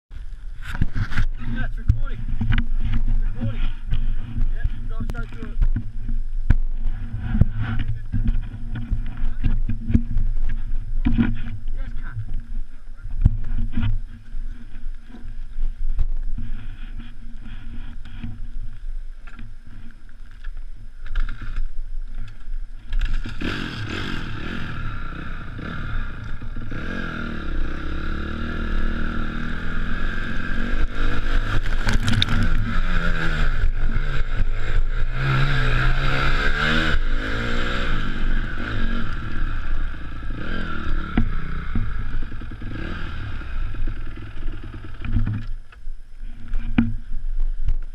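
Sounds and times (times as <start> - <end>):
dirt bike engine revving: 0.6 - 12.5, 22.8 - 45.4.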